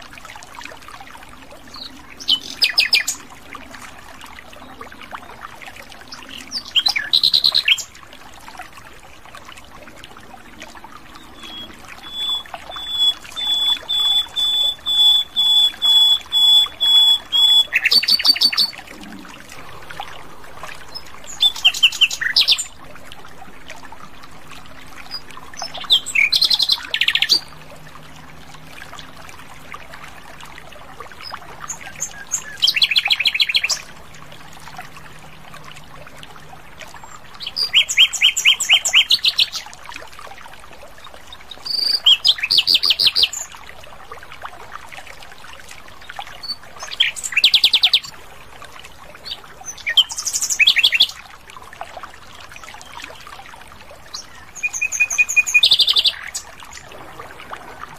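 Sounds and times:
nightingale singing: 11.2 - 18.8.

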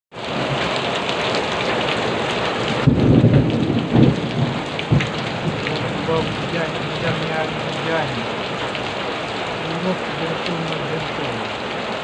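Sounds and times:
heavy rain on tiled roofs: 0.1 - 12.0.

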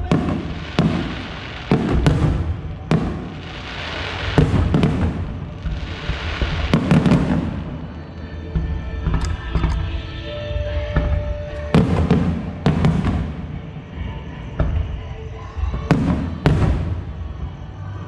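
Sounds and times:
firework bangs with rumble: 0.0 - 7.8, 11.0 - 13.5
hissing crackle: 0.0 - 8.3.

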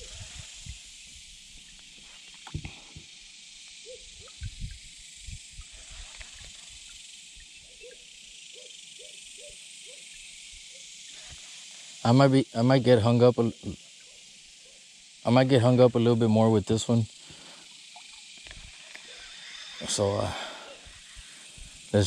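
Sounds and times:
high-pitched insect chorus: 0.0 - 22.0
short low animal calls: 18.9 - 21.4.

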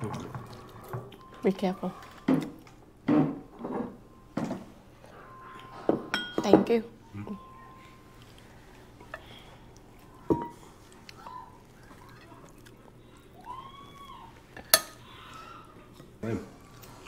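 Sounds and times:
dishes and cutlery clinking: 5.3 - 6.9, 10.2 - 10.7, 14.5 - 15.1.

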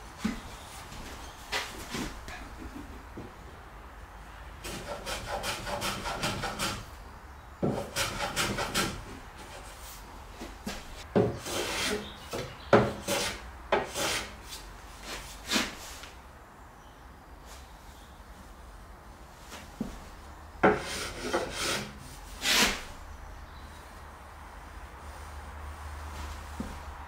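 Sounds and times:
hand tool shaving wood: 11.3 - 12.1, 20.7 - 22.8.

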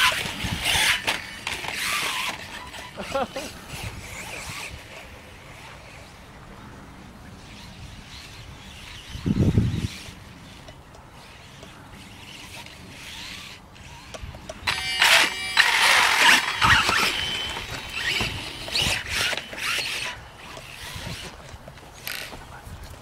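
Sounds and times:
toy motorcycle running over grass: 0.0 - 6.4, 7.3 - 23.0
electric motor whining: 11.4 - 21.5.

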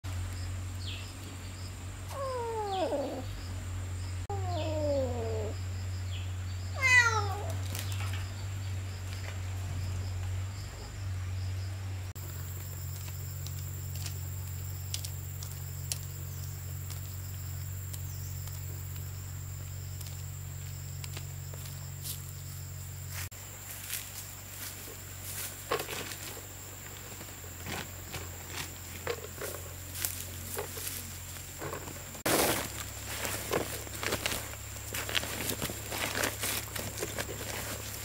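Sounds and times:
steady low hum: 0.1 - 6.8
animal crying falling in pitch: 2.1 - 3.3, 4.3 - 5.6.

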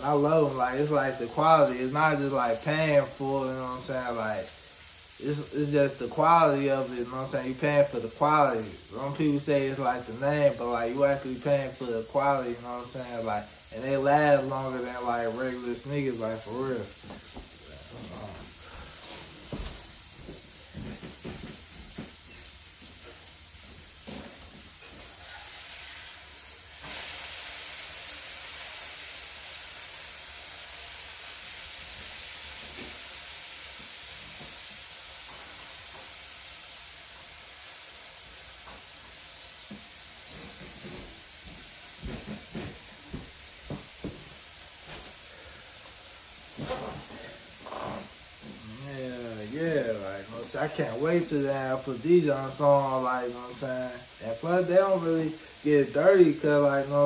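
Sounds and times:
steady hiss: 0.0 - 57.0
camp chair creaking and knocking: 46.6 - 48.1.

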